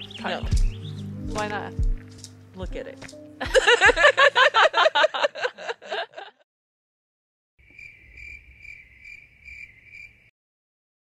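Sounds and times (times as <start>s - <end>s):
woman laughing loudly: 3.4s - 6.4s
cricket chirping: 7.6s - 10.3s.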